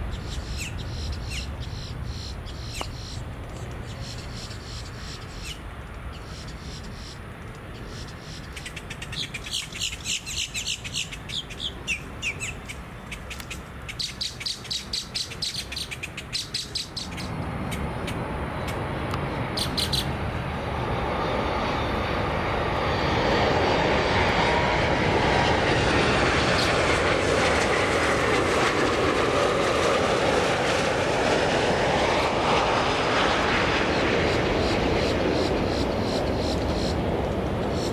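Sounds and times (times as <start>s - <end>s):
small bird chirping: 0.0s - 17.3s, 19.6s - 20.2s
jet airliner engine noise: 0.0s - 37.9s.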